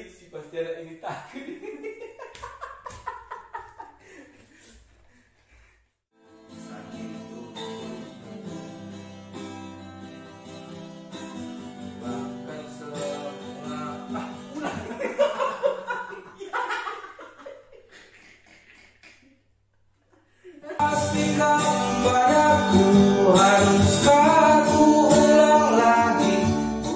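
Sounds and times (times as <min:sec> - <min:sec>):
men laughing: 0:01.2 - 0:04.8, 0:13.9 - 0:19.3, 0:20.2 - 0:21.3
guitar strummed in slow chords: 0:06.3 - 0:14.6, 0:20.8 - 0:26.9
man singing: 0:06.5 - 0:08.6, 0:11.9 - 0:14.7, 0:20.7 - 0:26.9.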